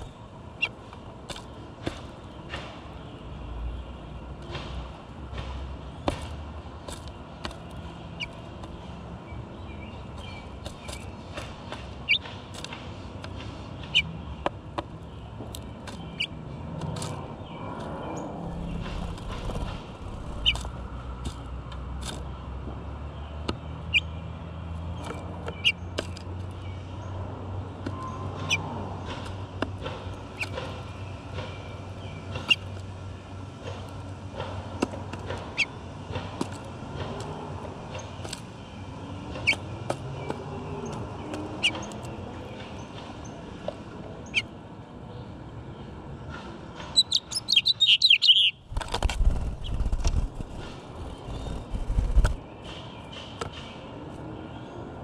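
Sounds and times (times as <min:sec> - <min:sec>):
birds pecking seeds on plastic: 0:00.0 - 0:02.8, 0:04.4 - 0:22.3, 0:24.9 - 0:42.7.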